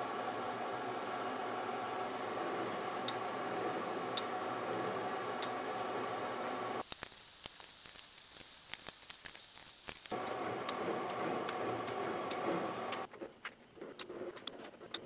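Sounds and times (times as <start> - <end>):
steady hum: 0.0 - 15.0
hiss: 6.8 - 10.2.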